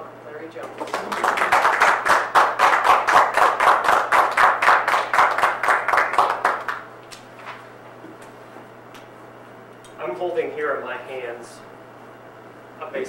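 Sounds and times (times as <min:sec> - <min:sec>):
audience applauding: 0:00.8 - 0:06.8.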